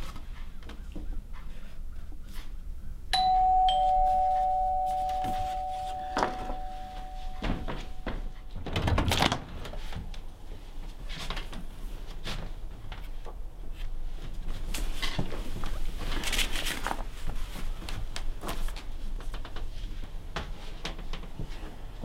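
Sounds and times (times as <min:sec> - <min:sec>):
two-tone doorbell chime: 0:03.2 - 0:08.8.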